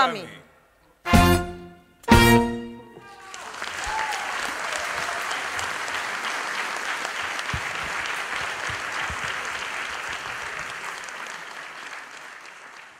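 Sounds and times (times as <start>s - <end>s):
audience applauding: 3.0s - 12.9s.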